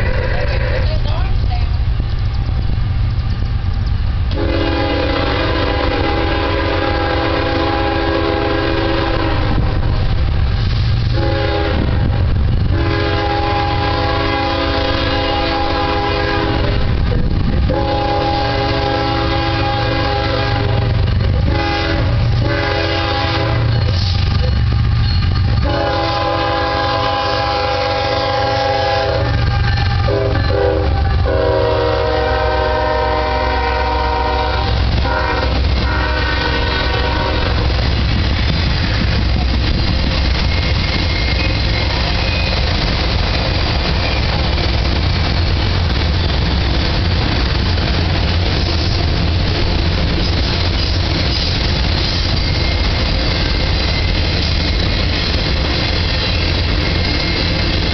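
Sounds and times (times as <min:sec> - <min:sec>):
train rumble: 0:00.0 - 0:57.9
locomotive air horn blasts: 0:04.3 - 0:09.8, 0:11.1 - 0:16.9, 0:17.7 - 0:23.9, 0:25.5 - 0:37.8.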